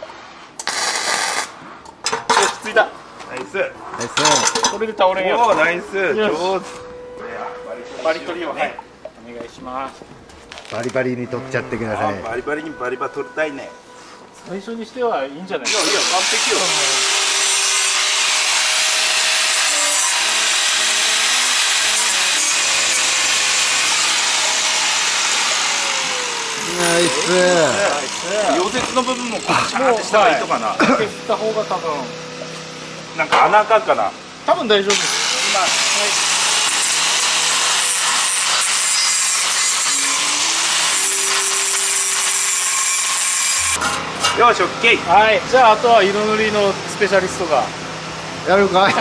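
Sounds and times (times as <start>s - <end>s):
angle grinder grinding steel: 15.7s - 32.0s, 34.9s - 44.6s.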